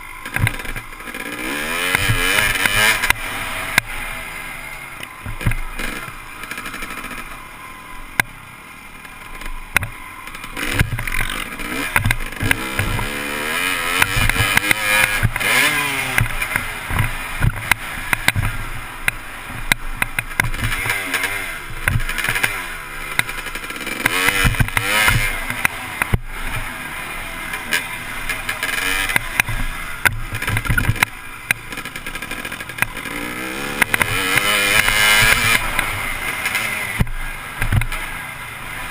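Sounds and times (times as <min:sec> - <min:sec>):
bike hitting bumps: 0:00.0 - 0:04.3, 0:04.9 - 0:07.4, 0:09.0 - 0:38.2
dirt bike engine revving: 0:00.0 - 0:38.9.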